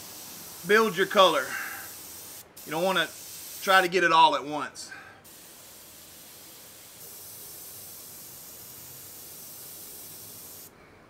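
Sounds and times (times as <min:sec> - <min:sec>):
airbrush spraying hiss: 0:00.0 - 0:04.0, 0:05.2 - 0:10.7.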